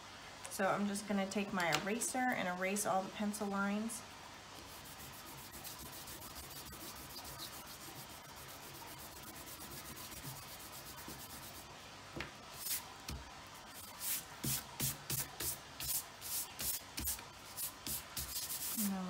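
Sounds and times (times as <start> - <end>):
eraser rubbing on paper: 4.7 - 11.7, 13.7 - 19.0
hand sweeping paper: 13.7 - 19.0.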